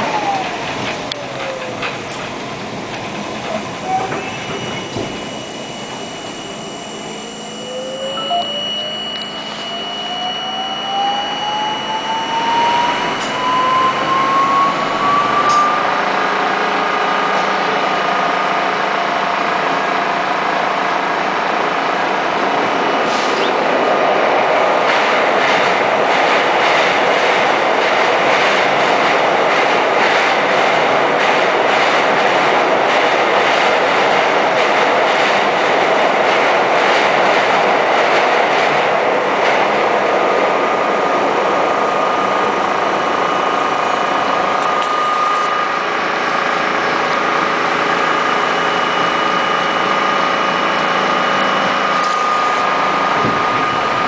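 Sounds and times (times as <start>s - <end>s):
rapid clicking over rails: 0.0s - 4.2s, 24.4s - 40.6s
train wheels running on rails: 0.0s - 7.2s, 11.3s - 54.0s
subway traction motor whine: 0.0s - 54.0s.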